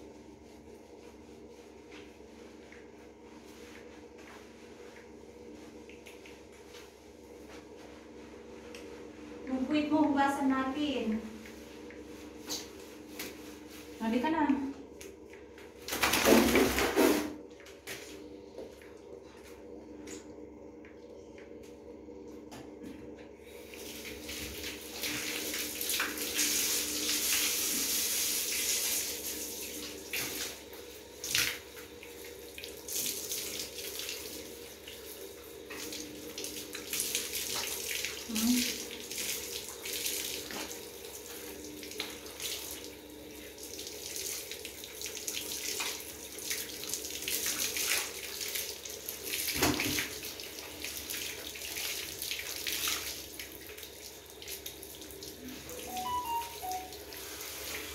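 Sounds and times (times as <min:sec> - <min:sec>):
shower spray on wet dog: 0:23.6 - 0:57.9.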